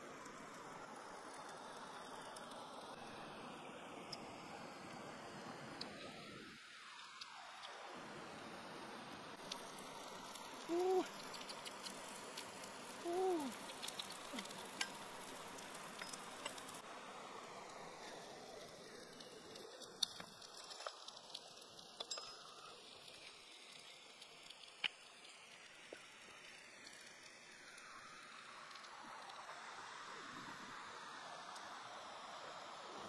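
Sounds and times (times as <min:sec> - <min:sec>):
food sizzling on hot stone: 0:00.2 - 0:32.9
sharp crackles: 0:09.4 - 0:16.8, 0:18.0 - 0:29.6
person humming mm: 0:10.7 - 0:11.1, 0:13.0 - 0:13.6.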